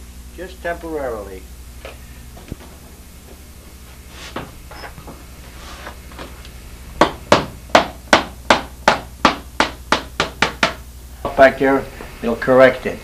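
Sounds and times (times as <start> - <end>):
hammer striking nail into wood: 7.0 - 10.8.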